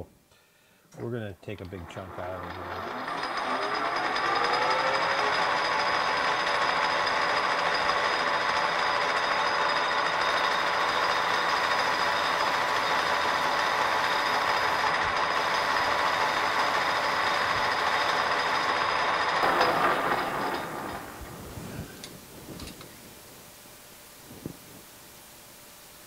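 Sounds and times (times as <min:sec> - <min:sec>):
metal lathe cutting: 0:01.8 - 0:22.2
high ringing tones: 0:02.4 - 0:22.3.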